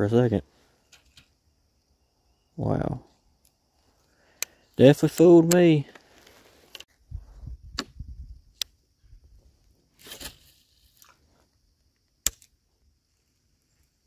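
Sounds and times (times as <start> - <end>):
sharp click: 12.2 - 12.5.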